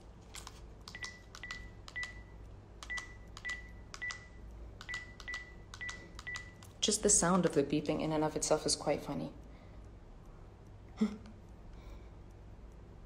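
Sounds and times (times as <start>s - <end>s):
phone keypad beeps: 0.9s - 6.6s.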